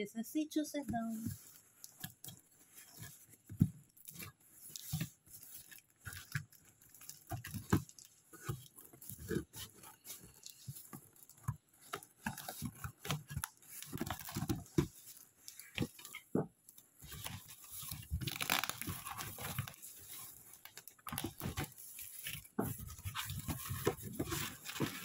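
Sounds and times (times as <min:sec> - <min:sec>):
packing tape peeling and tearing: 0:17.2 - 0:25.0.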